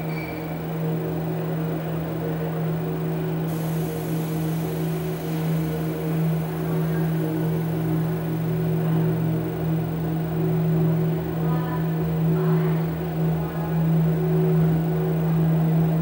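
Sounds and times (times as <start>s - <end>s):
thin high hiss: 3.5s - 8.9s
electronic drone: 3.5s - 10.6s.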